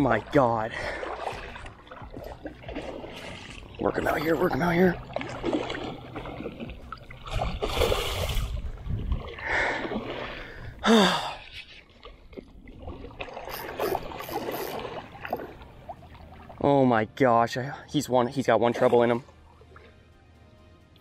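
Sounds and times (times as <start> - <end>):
fish splashing in water: 4.9 - 10.6, 12.0 - 16.6
man gasping: 10.7 - 11.5.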